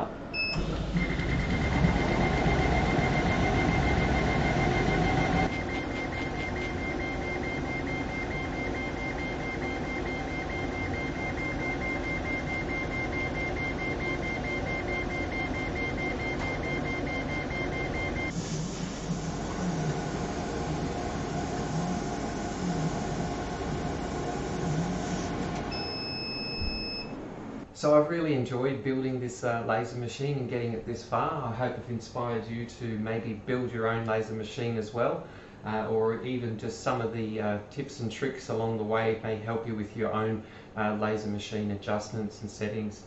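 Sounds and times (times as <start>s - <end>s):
high-pitched whine: 0.0s - 8.9s, 12.1s - 26.0s
machine mechanical hum: 0.0s - 43.0s.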